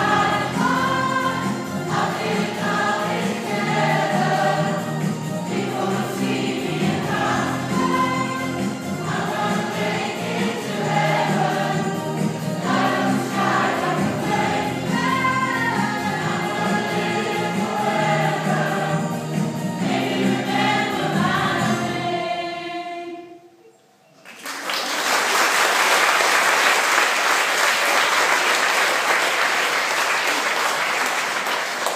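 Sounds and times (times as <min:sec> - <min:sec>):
group singing with music: 0:00.0 - 0:23.8
audience applauding: 0:24.2 - 0:31.9.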